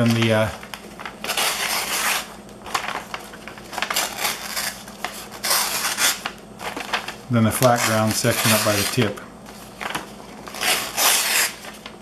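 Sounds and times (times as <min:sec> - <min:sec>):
knife slicing paper: 0:01.2 - 0:03.1, 0:03.7 - 0:09.2, 0:09.8 - 0:11.9.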